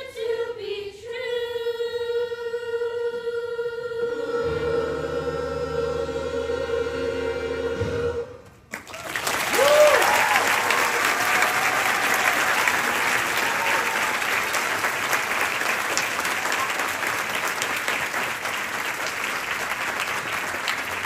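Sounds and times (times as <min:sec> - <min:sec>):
large audience applauding: 0:08.7 - 0:21.0
cheering shouts: 0:08.9 - 0:15.0.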